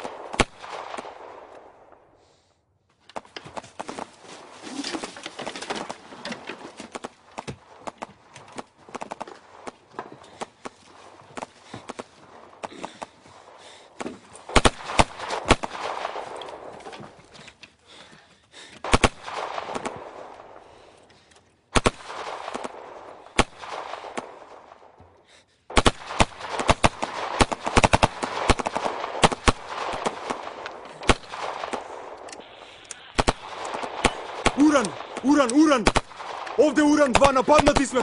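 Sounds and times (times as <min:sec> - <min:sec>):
gunshots with echo: 0:00.0 - 0:02.1, 0:08.9 - 0:16.9, 0:18.8 - 0:20.9, 0:25.7 - 0:38.0.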